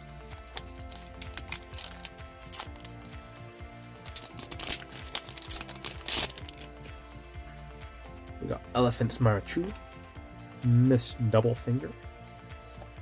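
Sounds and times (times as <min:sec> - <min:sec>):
background music: 0:00.0 - 0:13.0
foil wrapper tearing and crinkling: 0:00.4 - 0:03.2, 0:04.0 - 0:06.9.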